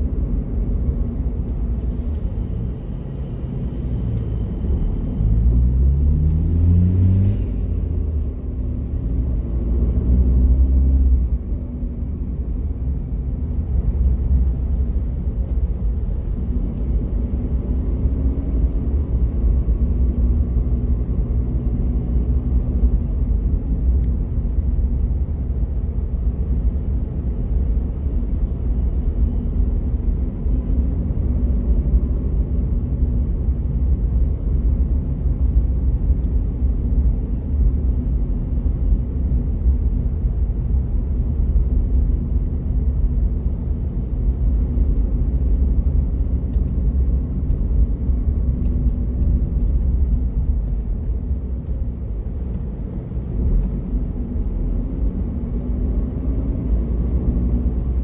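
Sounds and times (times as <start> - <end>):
car engine and tyres rumbling: 0.0 - 58.0.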